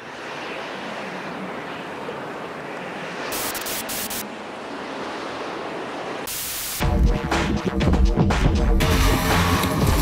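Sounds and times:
bright hiss bursts: 3.4 - 4.2, 6.3 - 6.8.

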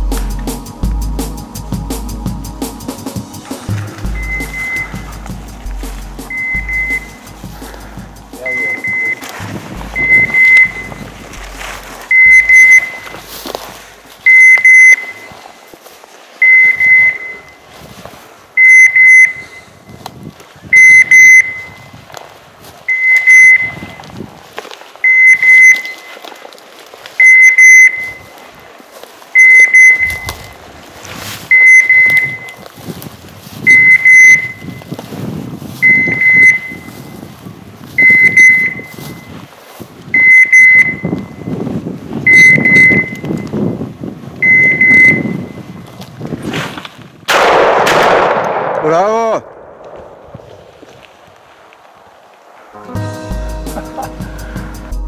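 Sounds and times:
dog beeper collar beeping: 4.1 - 5.1, 6.3 - 7.2, 8.4 - 9.2, 10.0 - 11.1, 12.1 - 13.2, 14.2 - 15.3, 16.4 - 17.6, 18.6 - 19.7, 29.4 - 30.6, 31.5 - 32.6, 33.7 - 34.8, 35.8 - 36.9, 38.0 - 39.3, 40.2 - 41.5, 42.3 - 43.4, 44.4 - 45.7.

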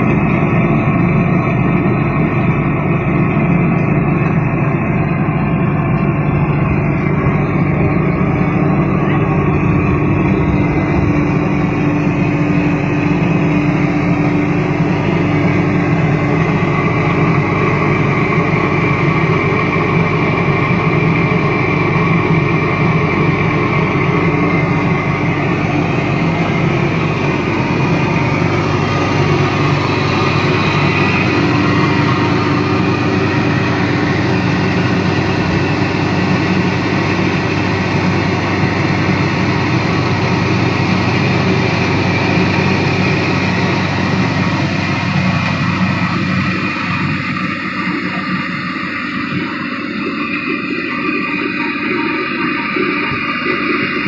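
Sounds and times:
water pump machine droning: 0.0 - 54.0.

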